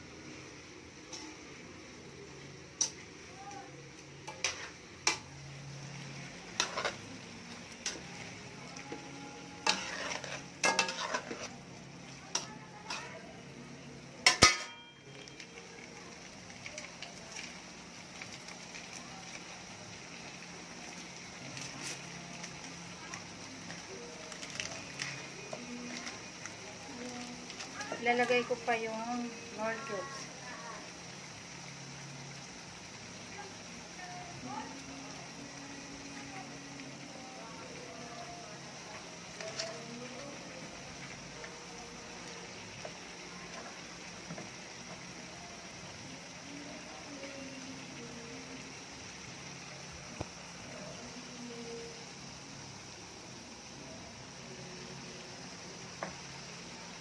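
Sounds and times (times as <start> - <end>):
food sizzling in a wok: 0.0 - 57.0
crackles and pops: 14.2 - 19.6, 20.8 - 28.8.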